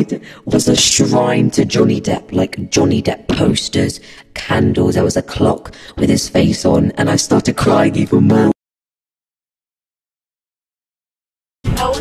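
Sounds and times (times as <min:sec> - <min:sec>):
music with strong bass: 0:11.7 - 0:12.0.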